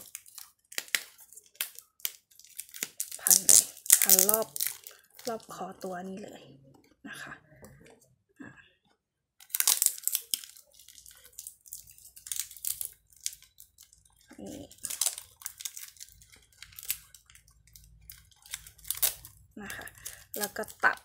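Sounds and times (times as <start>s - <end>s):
sticky tape ripping off roll: 0.0s - 5.3s, 9.4s - 13.6s, 14.8s - 19.4s
paper crinkling: 0.0s - 5.8s, 9.4s - 21.0s.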